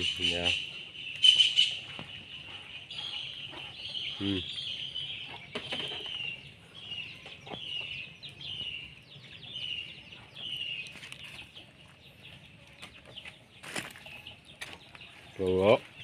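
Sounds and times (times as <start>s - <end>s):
bird chirping: 0.0s - 16.0s.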